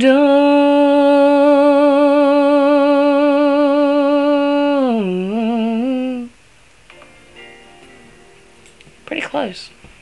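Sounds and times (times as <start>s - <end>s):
woman singing unaccompanied: 0.0s - 6.4s.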